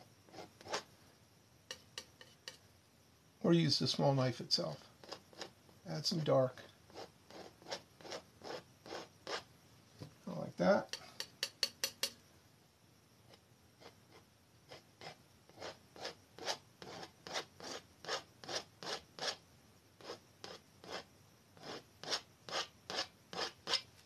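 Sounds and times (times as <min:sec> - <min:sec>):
palette knife scraping paint: 0:00.3 - 0:00.9, 0:01.7 - 0:02.6, 0:05.0 - 0:05.6, 0:06.9 - 0:09.5, 0:13.3 - 0:19.4, 0:20.0 - 0:23.9.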